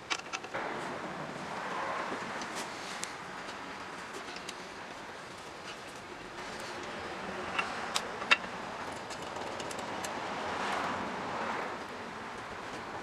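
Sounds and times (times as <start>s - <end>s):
sharp metal clicks: 7.5s - 10.2s.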